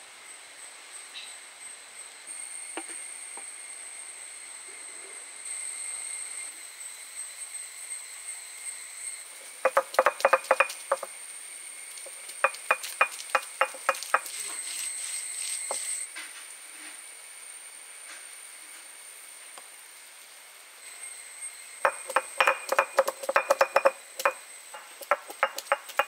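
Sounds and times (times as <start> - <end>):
stone roller striking stone slab: 9.7 - 11.1, 12.0 - 14.6, 21.9 - 26.0.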